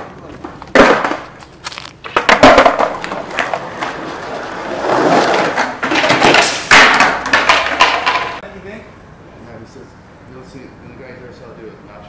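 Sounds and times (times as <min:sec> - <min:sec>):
skateboard clacks: 0:00.0 - 0:08.4
skateboard wheels rolling on concrete: 0:00.0 - 0:08.4.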